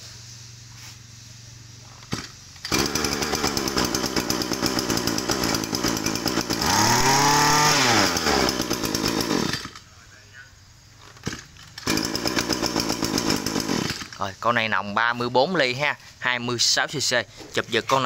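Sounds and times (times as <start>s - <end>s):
brush cutter engine revving: 2.1s - 9.9s, 11.2s - 14.3s.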